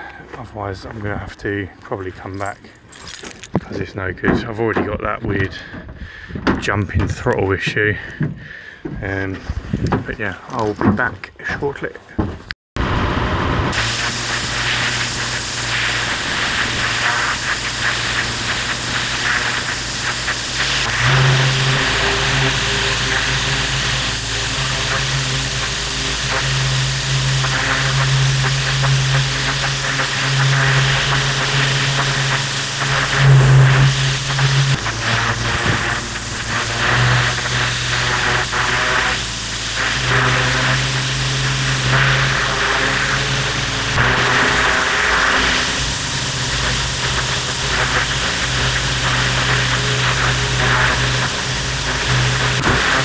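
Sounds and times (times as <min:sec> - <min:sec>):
engine hum: 0:12.8 - 0:53.0
pressure washer spraying concrete: 0:13.7 - 0:53.0.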